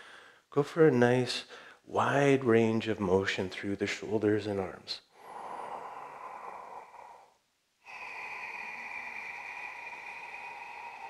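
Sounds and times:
man breathing slowly: 0:00.0 - 0:00.5, 0:05.1 - 0:11.0.

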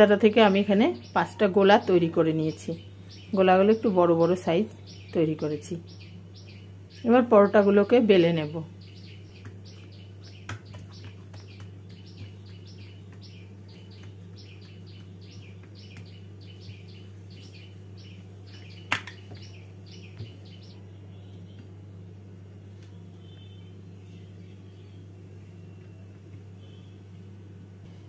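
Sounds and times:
steady low hum: 0:00.0 - 0:28.0
small bird chirping: 0:00.4 - 0:03.9, 0:04.7 - 0:21.7.

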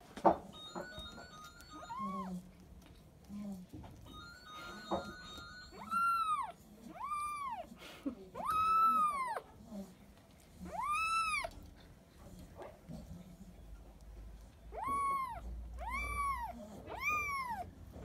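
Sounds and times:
kitten meowing: 0:05.7 - 0:07.7, 0:08.4 - 0:09.5, 0:10.6 - 0:11.6, 0:14.7 - 0:17.7.

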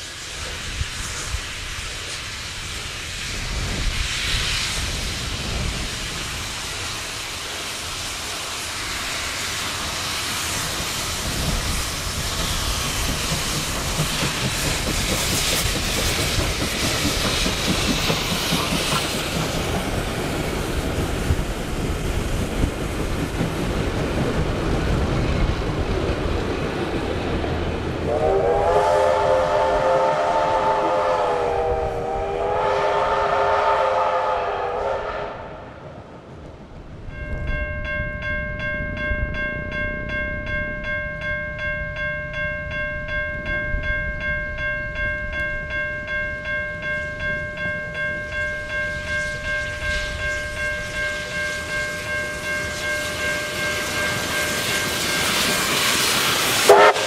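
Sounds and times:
train rumble: 0:00.0 - 0:57.0
wheels clicking over rail joints: 0:10.7 - 0:28.0
steam whistle blasts: 0:28.1 - 0:35.6, 0:56.6 - 0:57.0.

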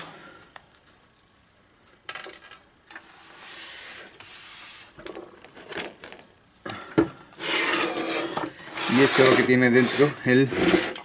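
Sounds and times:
sheet metal scraping slide: 0:07.4 - 0:11.0.

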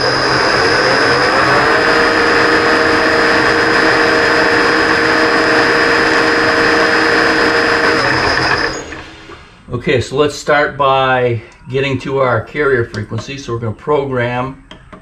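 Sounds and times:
lathe motor humming: 0:00.0 - 0:09.6
high-pitched drive whine: 0:00.0 - 0:09.8.

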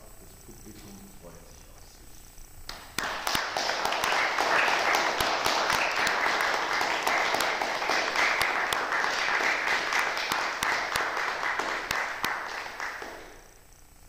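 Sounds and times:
audience applauding: 0:02.7 - 0:13.5.

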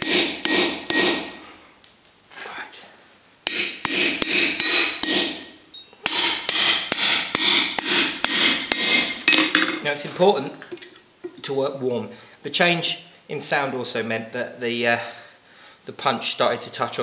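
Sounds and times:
hammer blows ringing on hot metal: 0:00.0 - 0:01.4, 0:03.4 - 0:09.2.

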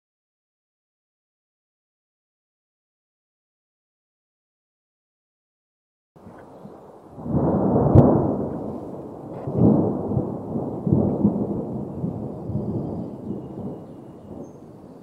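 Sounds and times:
rolling thunder: 0:06.2 - 0:15.0
thunder crack: 0:06.3 - 0:15.0.

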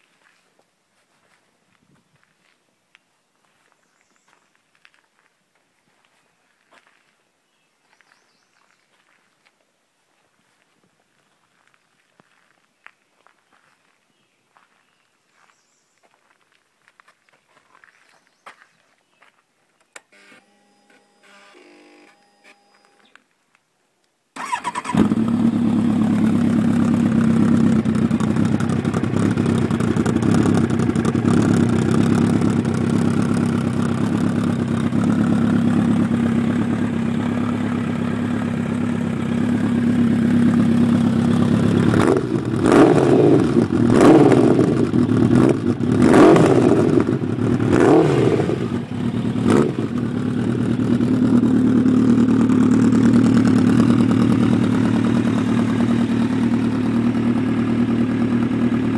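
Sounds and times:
motorcycle engine idling: 0:24.4 - 0:58.9
motorcycle engine revving: 0:24.4 - 0:58.9.

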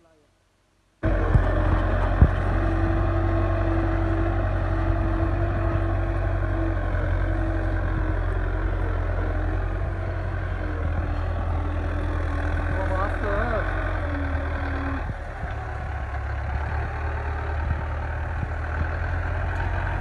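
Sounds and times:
tractor diesel engine under load: 0:01.0 - 0:20.0.

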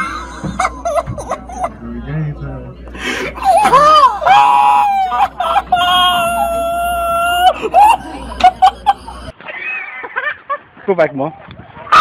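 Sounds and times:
person screaming: 0:00.0 - 0:00.8, 0:03.3 - 0:09.3.

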